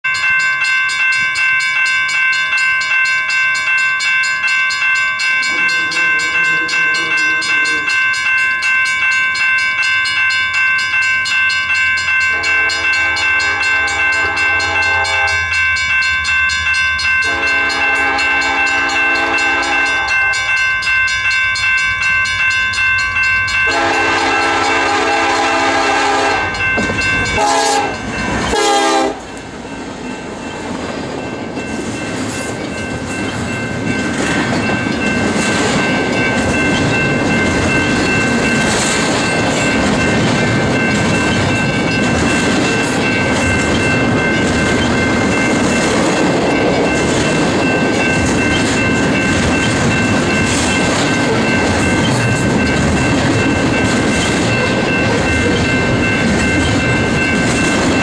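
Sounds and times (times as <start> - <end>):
high pulsing ringing: 0.1 - 30.6
train horn blasts: 12.3 - 15.5, 17.2 - 20.4, 23.7 - 26.6, 27.3 - 29.3.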